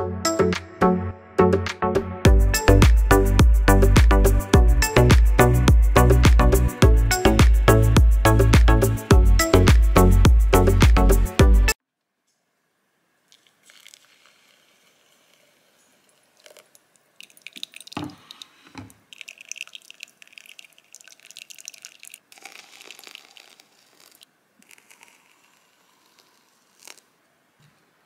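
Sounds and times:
hot water pouring and trickling: 13.3s - 27.1s.

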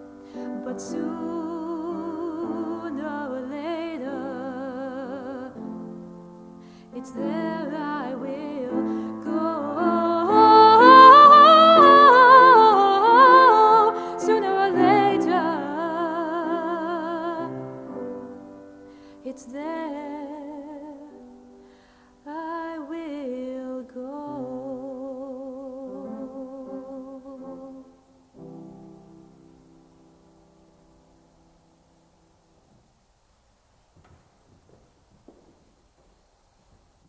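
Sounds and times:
person singing with vibrato: 0.0s - 6.1s, 6.8s - 28.3s.

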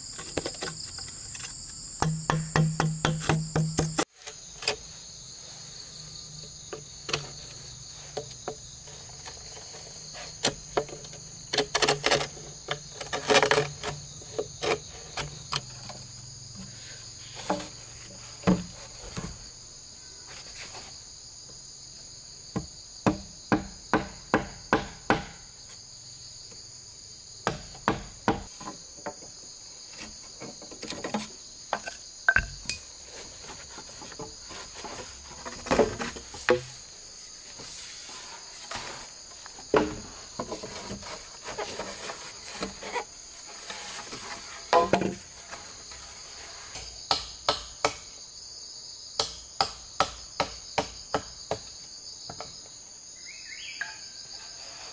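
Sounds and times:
bamboo pieces striking poles: 0.0s - 4.9s, 6.4s - 15.9s, 22.6s - 25.6s, 27.4s - 29.4s, 30.0s - 36.9s, 38.7s - 45.9s, 46.6s - 48.1s, 49.2s - 51.7s
high-pitched insect chorus: 0.0s - 54.9s
blade knocking on bamboo: 2.0s - 4.0s, 23.0s - 25.4s.

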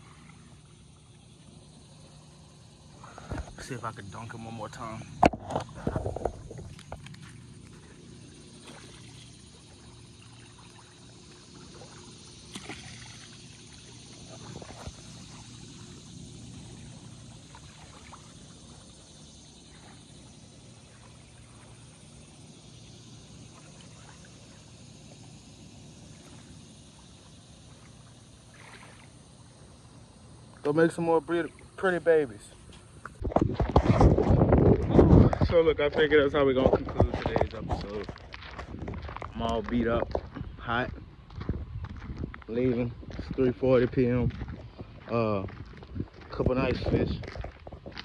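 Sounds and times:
fish splashing in water: 5.1s - 30.5s.

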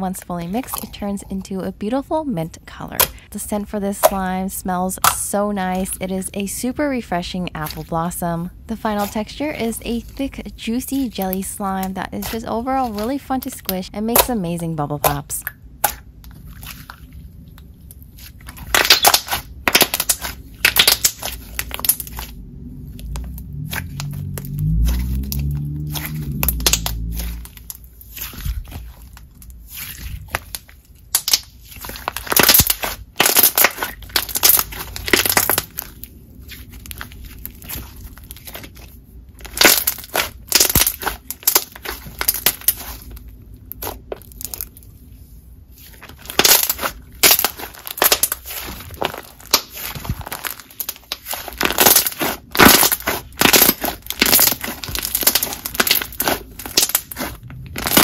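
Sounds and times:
slime squishing: 0.0s - 58.0s
slime bubbles popping: 18.5s - 22.3s, 23.2s - 28.6s, 46.2s - 58.0s.

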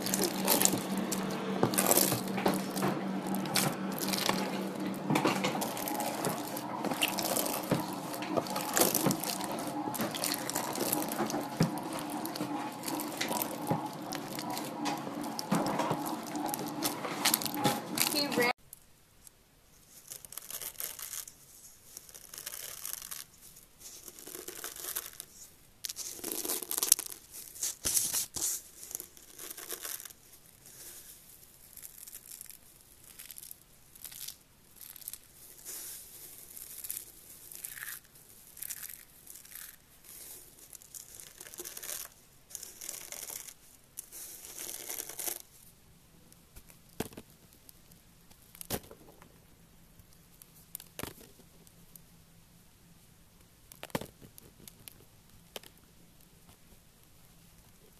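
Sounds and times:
shavings rustling and crackling: 0.0s - 18.5s, 19.8s - 45.8s.

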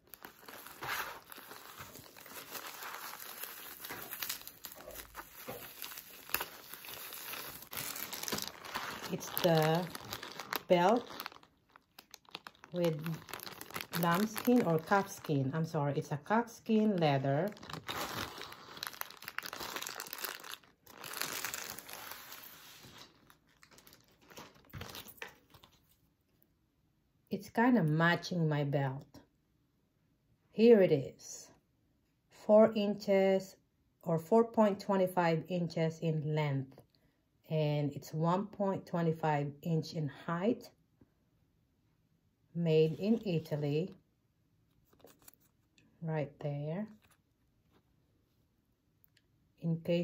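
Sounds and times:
plastic wrapping crinkling: 0.0s - 15.5s, 16.7s - 25.8s, 44.8s - 45.7s.

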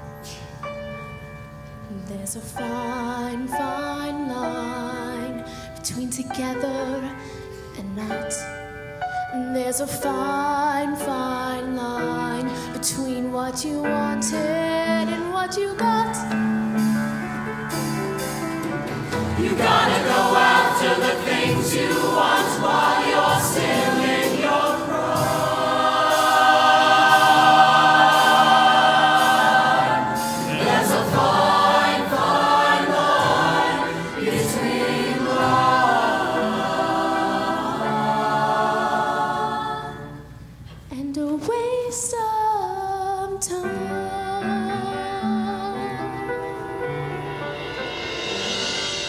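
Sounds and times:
woman singing into a microphone: 1.9s - 8.5s, 9.3s - 16.3s, 40.9s - 46.8s
choir singing with accompaniment: 18.8s - 40.6s.

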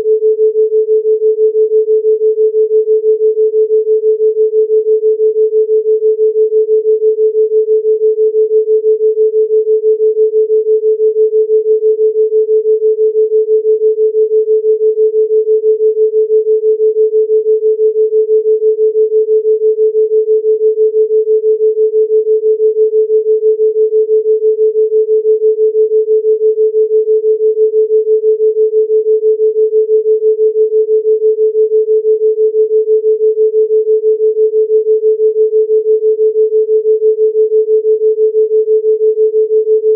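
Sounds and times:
throbbing sine tone: 0.0s - 39.9s.

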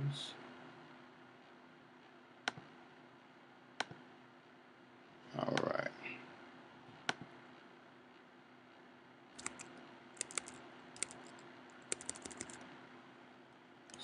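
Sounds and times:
faint steady hum: 0.0s - 14.0s
keyboard typing clicks: 9.4s - 12.7s.

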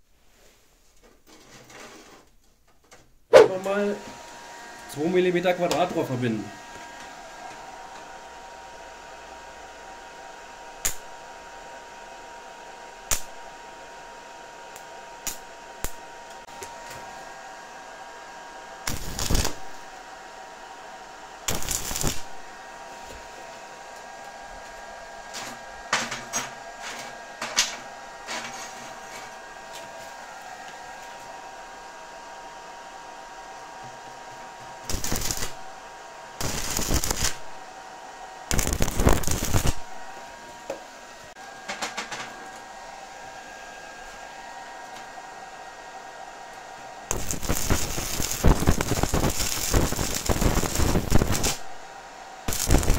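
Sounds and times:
welding arc crackling: 10.8s - 11.2s, 13.1s - 13.5s, 14.7s - 17.0s, 18.8s - 20.0s, 21.4s - 23.2s, 34.8s - 35.8s, 36.4s - 37.6s, 38.5s - 40.2s, 47.1s - 52.9s.

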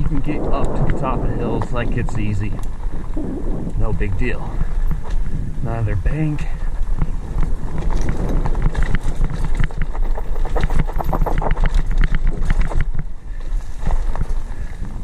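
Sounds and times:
bike rattling over rough trail: 0.0s - 15.0s
wind on microphone: 0.0s - 15.0s.

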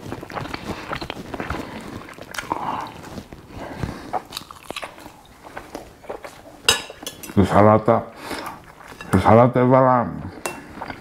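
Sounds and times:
person chewing food: 0.0s - 7.4s, 8.1s - 9.2s, 10.3s - 11.0s.

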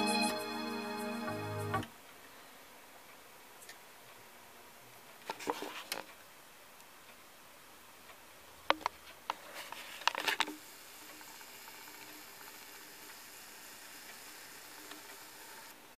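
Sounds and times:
turntable hiss: 9.4s - 16.0s.

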